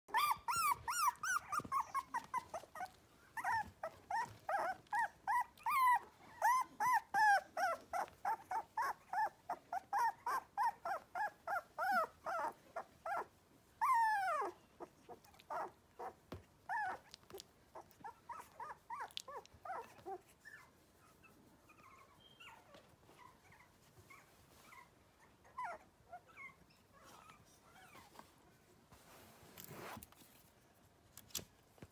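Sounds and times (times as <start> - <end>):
puppies crying: 0.1 - 14.6.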